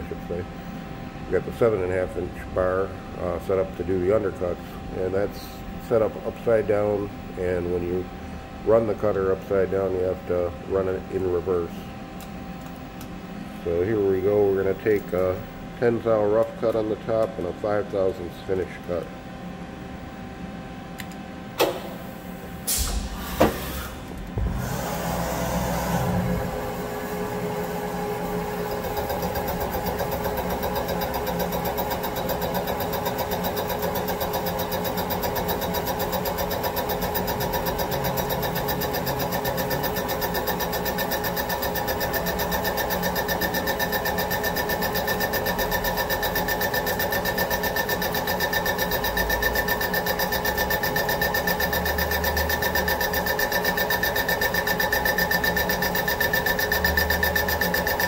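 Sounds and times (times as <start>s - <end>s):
milling machine cutting metal: 24.5s - 58.0s.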